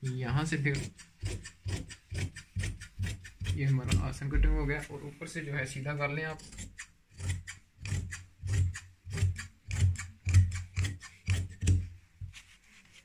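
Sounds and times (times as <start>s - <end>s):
shears snipping fabric: 0.0s - 4.1s, 6.4s - 11.8s.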